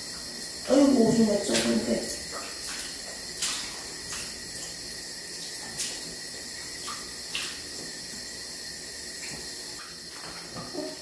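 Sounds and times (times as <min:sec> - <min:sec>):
water splashes: 0:00.6 - 0:08.2
water sloshing in plastic basin: 0:00.7 - 0:07.9.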